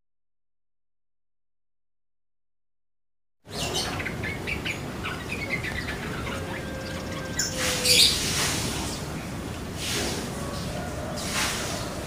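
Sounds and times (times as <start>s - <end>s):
small birds chirping: 3.5s - 9.4s.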